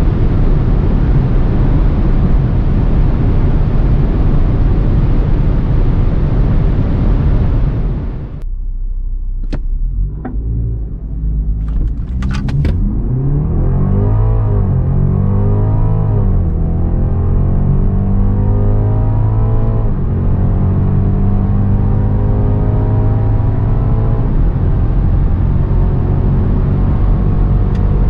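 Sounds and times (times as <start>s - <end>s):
car engine: 0.0s - 28.0s
car engine revving: 0.0s - 28.0s
wind and road noise in car: 0.0s - 28.0s.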